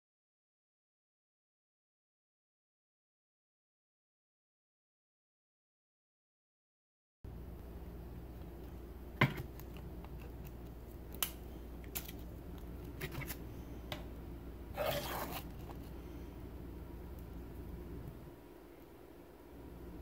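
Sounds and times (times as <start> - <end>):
short scrape on wood: 14.8 - 15.5.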